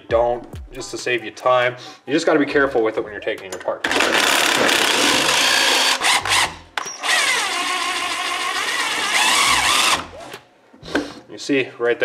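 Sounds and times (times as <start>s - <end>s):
cordless drill running: 3.9s - 10.3s.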